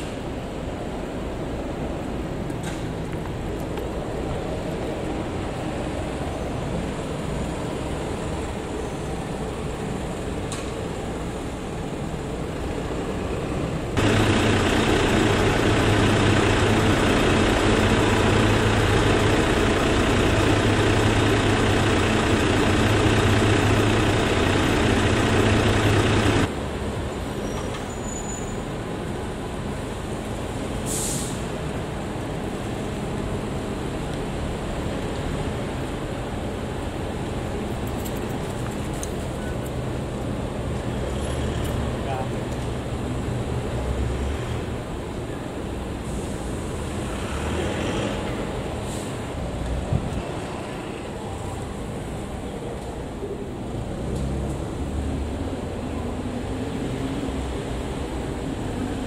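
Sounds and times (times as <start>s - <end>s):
road traffic: 0.0s - 59.0s
low engine rumble: 14.0s - 26.5s
short hiss: 30.9s - 31.4s.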